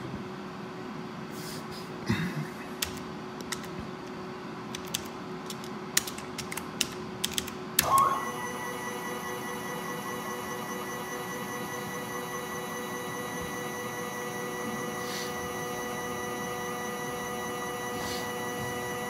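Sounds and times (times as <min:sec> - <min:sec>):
steady hum: 0:00.0 - 0:19.0
keyboard keys clicking: 0:02.8 - 0:03.8, 0:04.7 - 0:08.0
stepper motor whine: 0:07.8 - 0:19.0.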